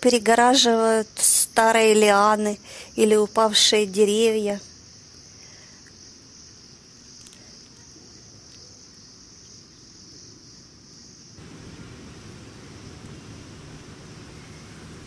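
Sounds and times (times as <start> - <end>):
crickets chirping: 0.0 - 15.0.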